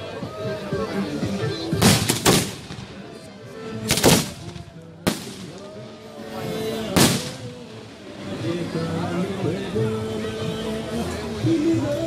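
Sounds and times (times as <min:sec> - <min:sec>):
music playing: 0:00.0 - 0:12.0
firework sharp crack: 0:01.8 - 0:03.0, 0:03.9 - 0:05.7, 0:07.0 - 0:07.6
fireworks bangs: 0:01.8 - 0:03.0, 0:03.9 - 0:05.6, 0:06.9 - 0:07.6.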